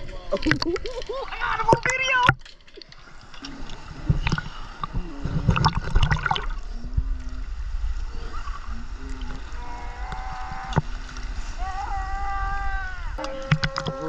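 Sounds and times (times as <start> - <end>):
water slapping and gurgling: 0.0 - 14.0
low rumble: 3.4 - 14.0
sea lions calling: 8.1 - 14.0.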